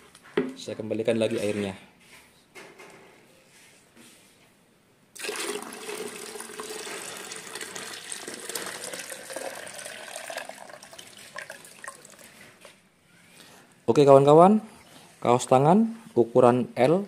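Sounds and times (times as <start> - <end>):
water pouring into plastic jug: 5.2 - 12.6.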